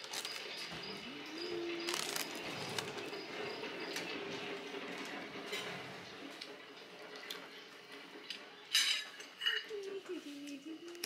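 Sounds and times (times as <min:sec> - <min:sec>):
cutlery clinking on plates: 0:08.7 - 0:09.8.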